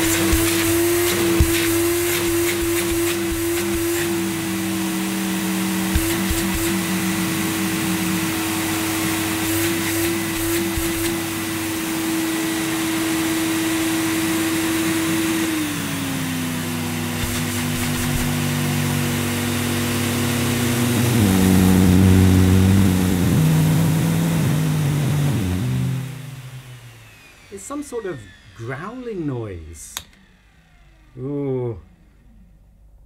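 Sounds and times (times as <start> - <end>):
vacuum cleaner motor whine: 0.0 - 32.6
low motor growling: 20.5 - 26.9.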